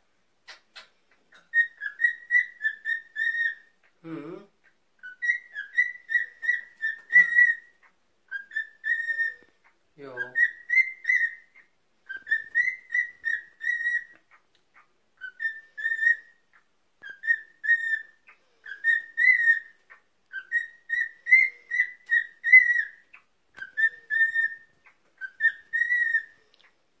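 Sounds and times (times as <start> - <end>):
cockatiel whistling: 1.3 - 3.7, 5.0 - 7.7, 8.3 - 9.5, 10.2 - 14.2, 15.2 - 16.4, 17.0 - 26.4.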